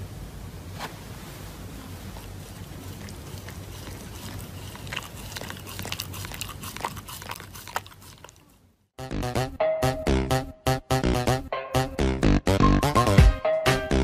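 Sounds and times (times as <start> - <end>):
low background hum: 0.0 - 9.0
dog chewing: 1.9 - 8.7
music: 9.0 - 14.0.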